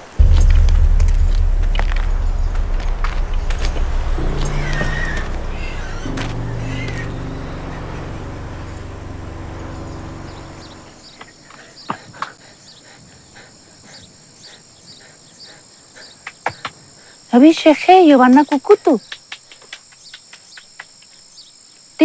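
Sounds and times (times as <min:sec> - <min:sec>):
low music chords: 0:00.0 - 0:11.1
insects chirring: 0:00.0 - 0:22.0.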